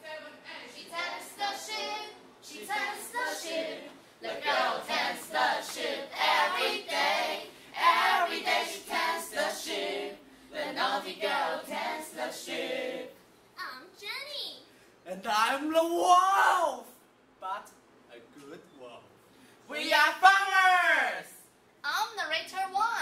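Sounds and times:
teenagers singing unaccompanied: 0.0s - 13.4s.

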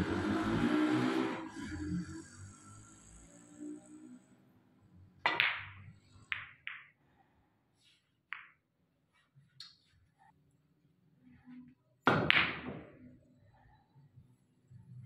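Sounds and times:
snooker balls clacking: 5.2s - 7.0s, 8.3s - 8.6s, 12.1s - 13.1s.

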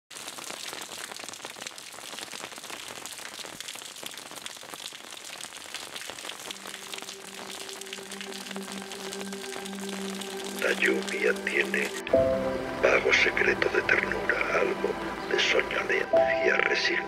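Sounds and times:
steady rain falling: 0.1s - 17.0s
low sustained music notes: 6.6s - 17.0s.

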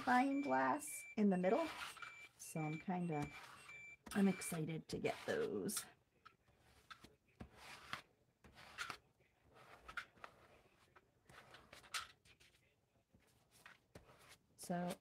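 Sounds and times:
plastic spreader scraping paper: 1.5s - 2.1s, 2.7s - 5.8s.

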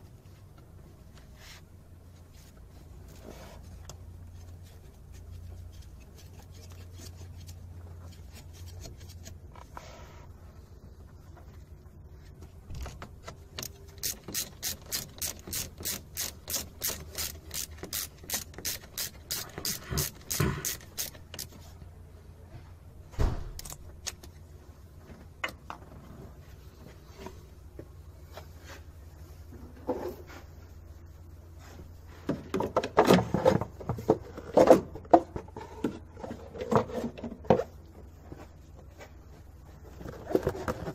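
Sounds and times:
hand ratchet clicking: 13.6s - 21.6s.

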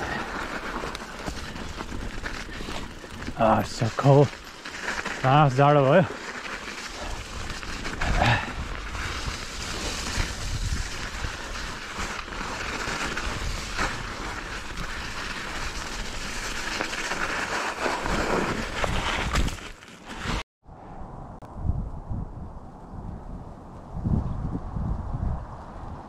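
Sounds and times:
wind rumbling on microphone: 0.0s - 5.5s, 6.8s - 16.8s, 20.2s - 26.0s
bike rattling: 0.0s - 20.4s
bike tyres rolling: 0.0s - 20.4s.

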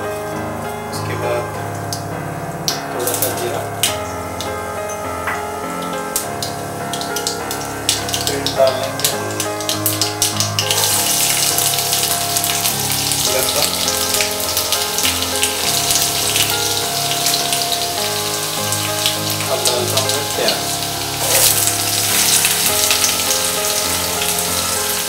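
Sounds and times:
background music: 0.0s - 25.0s
food sizzling in hot oil: 0.2s - 25.0s.

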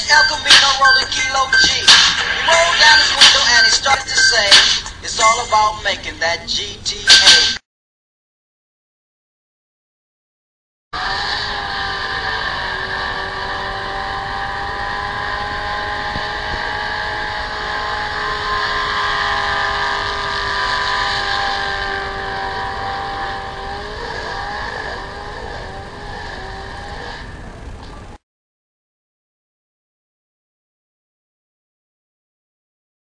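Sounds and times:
car engine at high revs: 0.0s - 5.3s, 11.0s - 28.2s
tyres screeching on pavement: 0.0s - 5.7s, 18.4s - 28.1s.

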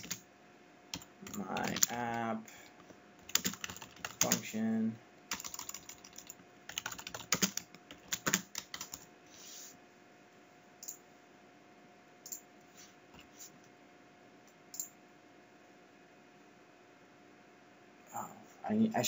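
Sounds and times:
computer keyboard key clicks: 1.0s - 2.2s.

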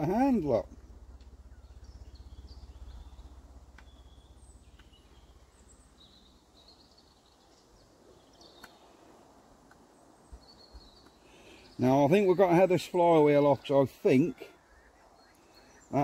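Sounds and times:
low pulsing hum: 0.0s - 8.5s
faint bird chirps: 0.0s - 12.6s, 13.2s - 16.0s
light clicks: 8.5s - 8.8s.

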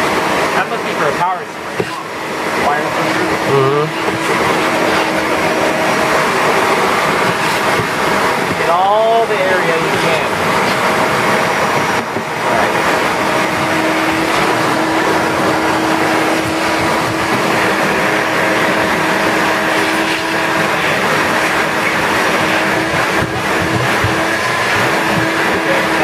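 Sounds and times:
vacuum cleaner running: 0.0s - 26.0s.

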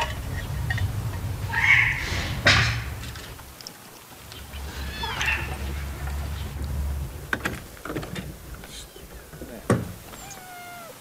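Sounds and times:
low rumble: 0.0s - 3.5s, 4.2s - 9.6s
cat meowing: 4.7s - 5.6s, 10.1s - 11.0s.

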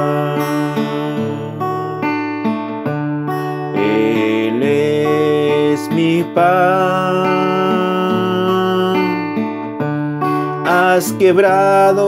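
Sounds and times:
man singing: 0.0s - 2.1s, 3.7s - 9.5s, 10.4s - 12.0s
acoustic guitar strumming chords: 0.0s - 12.0s.

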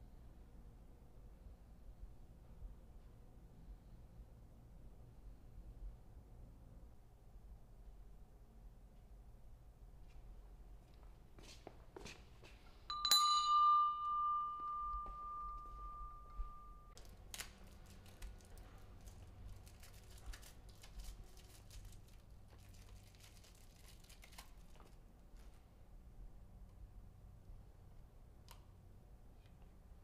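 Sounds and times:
metal object ringing like a bell: 12.9s - 17.0s.

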